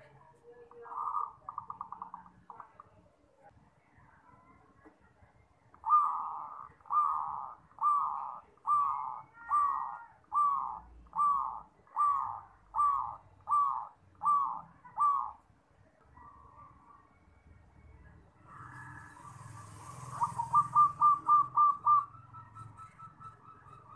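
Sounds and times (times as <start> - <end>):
dove cooing: 0.0 - 3.1, 5.8 - 15.4, 18.4 - 23.9.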